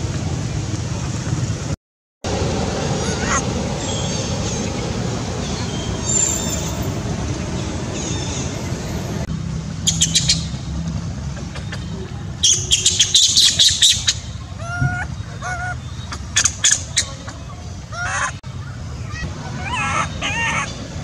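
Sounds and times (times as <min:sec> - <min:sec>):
low rumble: 0:02.2 - 0:09.8
lower bending animal call: 0:02.3 - 0:09.2
animal squawks and shrieks: 0:03.0 - 0:04.6, 0:12.4 - 0:17.2, 0:19.2 - 0:20.8.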